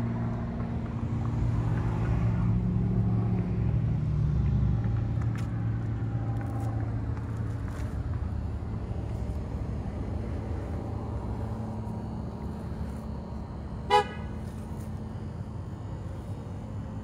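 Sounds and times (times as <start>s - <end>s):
steady low rumble: 0.0s - 17.0s
car horn toot: 13.8s - 14.5s.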